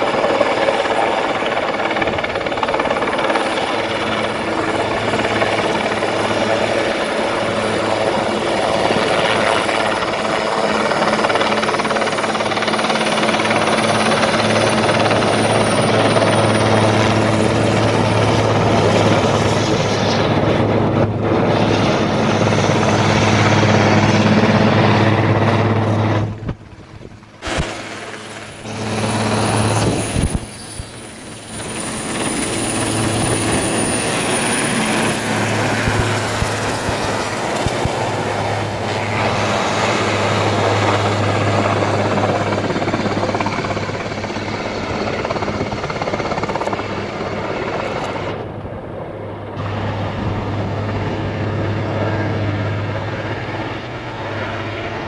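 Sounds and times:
helicopter rotor drone: 0:00.0 - 0:55.0
high turbine whine: 0:00.0 - 0:55.0.

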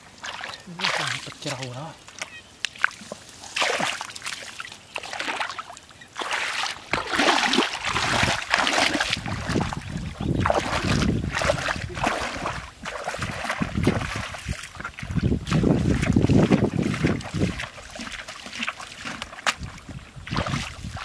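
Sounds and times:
muddy water splashing: 0:00.0 - 0:21.0.

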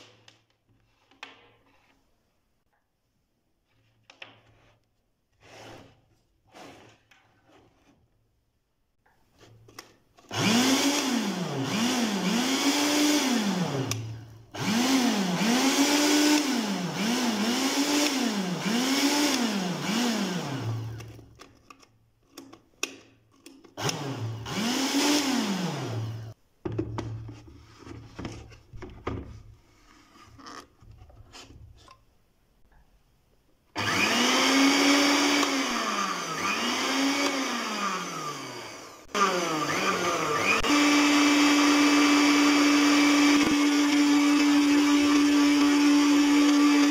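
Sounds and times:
blender motor spinning up and down: 0:10.3 - 0:21.2, 0:23.8 - 0:26.4, 0:33.8 - 0:46.9.

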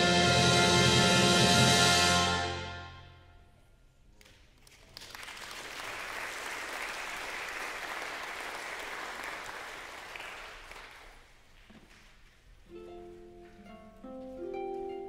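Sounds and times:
audience applauding: 0:04.6 - 0:11.4.

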